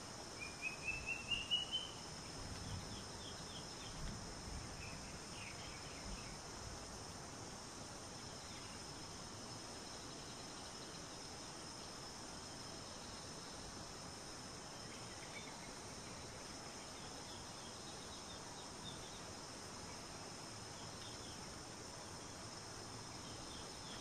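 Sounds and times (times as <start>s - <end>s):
faint high chirps: 0.4s - 2.0s.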